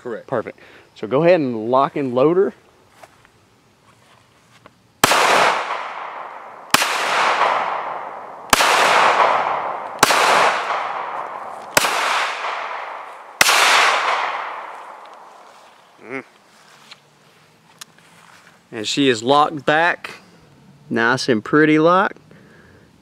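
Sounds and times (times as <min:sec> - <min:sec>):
pistol shots with echo: 0:05.0 - 0:15.3.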